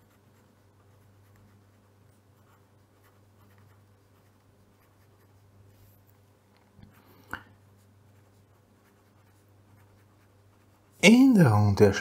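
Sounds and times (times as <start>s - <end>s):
pencil scratching on paper: 0.0s - 6.2s, 6.9s - 11.2s
low steady hum: 0.0s - 12.0s.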